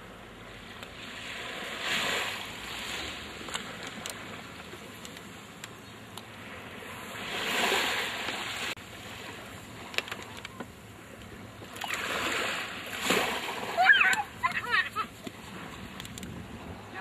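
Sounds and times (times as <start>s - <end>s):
small waves lapping on shore: 0.0s - 17.0s
surge of wave wash: 0.9s - 4.4s, 6.4s - 9.8s, 11.7s - 17.0s.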